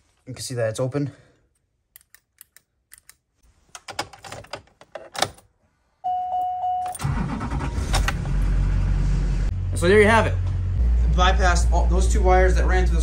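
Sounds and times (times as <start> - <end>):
dashboard warning tone: 6.1 - 7.0
engine cranking and running: 7.0 - 9.4.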